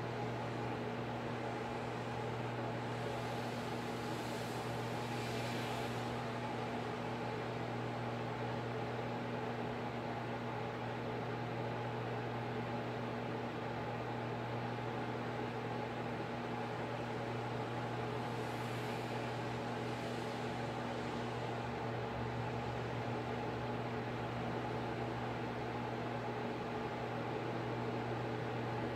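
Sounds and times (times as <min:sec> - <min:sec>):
hiss: 0:01.2 - 0:08.0, 0:16.7 - 0:21.8.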